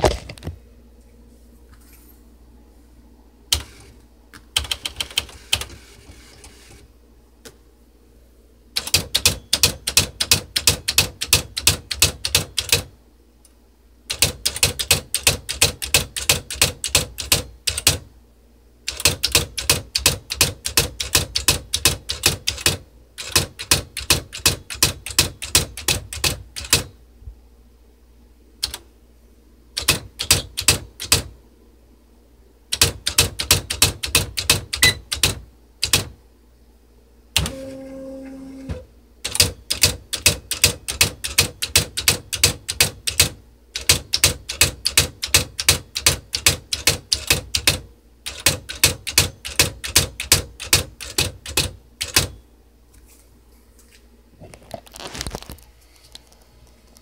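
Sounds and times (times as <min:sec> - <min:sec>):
typewriter striking characters: 0:08.8 - 0:12.9, 0:14.1 - 0:18.1, 0:18.9 - 0:26.9, 0:29.8 - 0:31.3, 0:32.7 - 0:36.1, 0:39.2 - 0:52.4.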